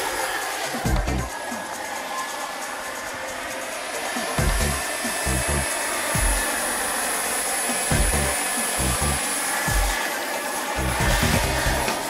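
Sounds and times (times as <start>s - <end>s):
turbine jet hiss and whine: 0.0s - 12.0s
low thumps: 4.4s - 4.8s, 7.9s - 9.1s.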